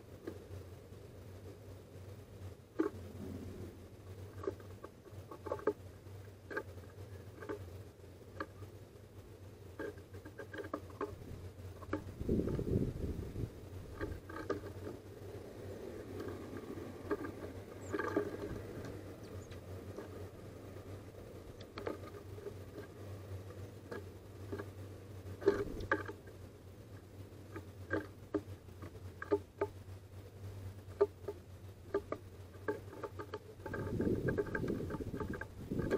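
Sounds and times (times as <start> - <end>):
low steady hum: 0.0 - 35.9
beaks tapping on wood: 4.3 - 7.7, 9.8 - 20.4, 21.4 - 26.3, 27.0 - 29.8, 30.8 - 35.9
bird pecking on wooden tray: 4.3 - 7.7, 9.7 - 26.4, 27.0 - 29.8, 30.8 - 35.9.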